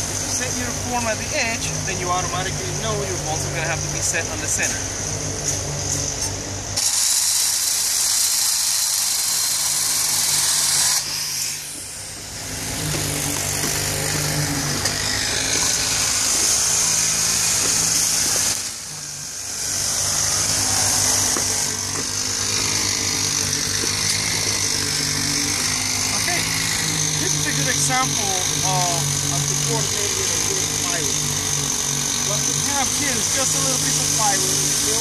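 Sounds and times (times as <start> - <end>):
machinery engine hum: 0.0 - 6.8, 11.0 - 35.0
loud high hiss: 6.8 - 12.1.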